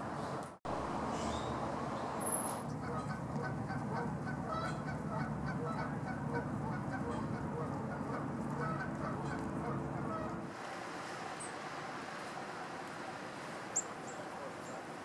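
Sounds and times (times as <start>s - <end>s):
low steady rumble: 0.7s - 10.5s
geese honking: 2.7s - 14.9s.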